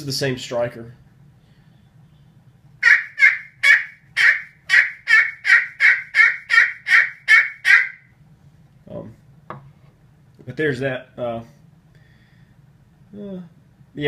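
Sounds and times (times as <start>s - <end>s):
high-pitched turkey call yelps: 2.8s - 8.1s.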